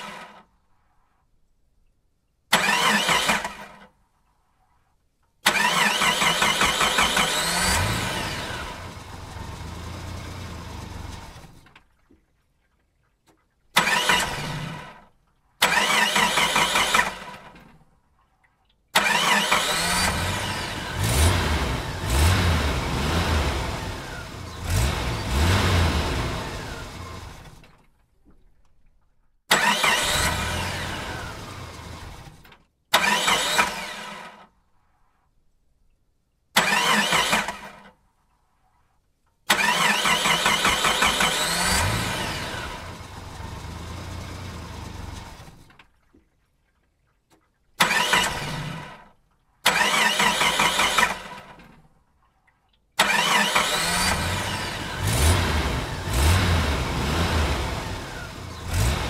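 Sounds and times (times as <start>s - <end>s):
engine starting and revving: 0.0s - 0.5s, 2.5s - 3.9s, 5.4s - 11.8s, 13.8s - 15.0s, 15.6s - 17.7s, 19.0s - 27.8s, 29.5s - 34.5s, 36.6s - 37.9s, 39.5s - 45.8s, 47.8s - 51.7s, 53.0s - 59.0s.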